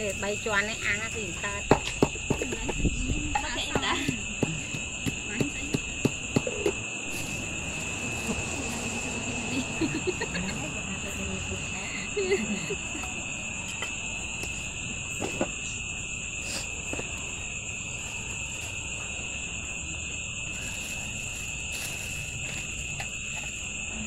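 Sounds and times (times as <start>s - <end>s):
insect chirring: 0.0s - 24.0s.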